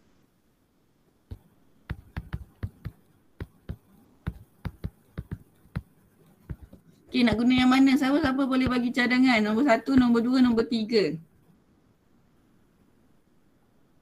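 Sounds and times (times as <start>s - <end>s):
stylus tapping on tablet screen: 1.3s - 10.3s.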